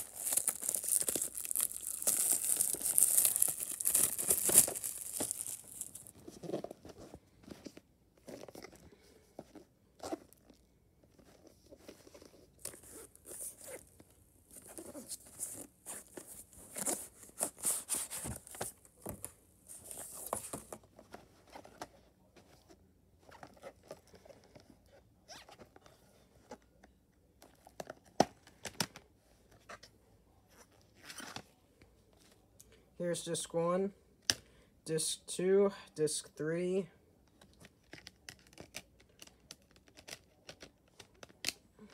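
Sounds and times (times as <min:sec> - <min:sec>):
plastic wrap tearing and crinkling: 0:00.0 - 0:06.1.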